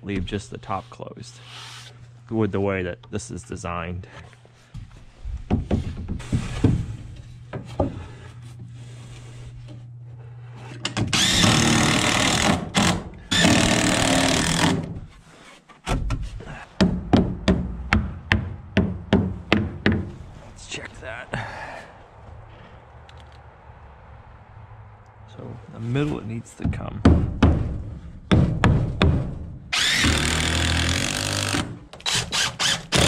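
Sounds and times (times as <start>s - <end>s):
impact driver driving screw into wood: 10.8s - 15.0s, 29.7s - 33.0s.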